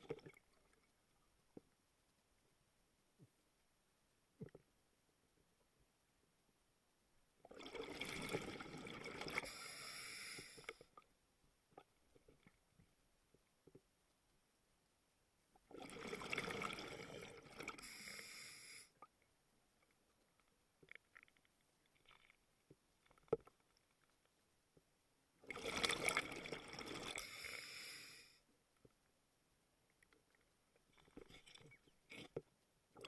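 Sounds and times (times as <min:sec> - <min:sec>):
regulator bubbles underwater: 0:07.5 - 0:09.6.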